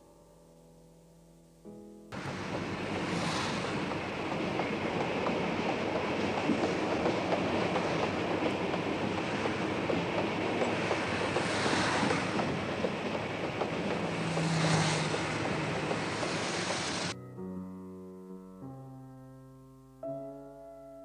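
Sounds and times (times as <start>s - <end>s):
train rumbling and clattering: 2.2s - 17.2s
wind rushing: 2.2s - 17.2s.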